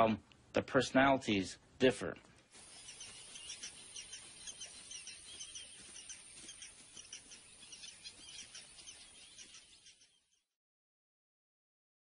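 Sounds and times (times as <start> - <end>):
birds chirping: 2.3 - 10.6.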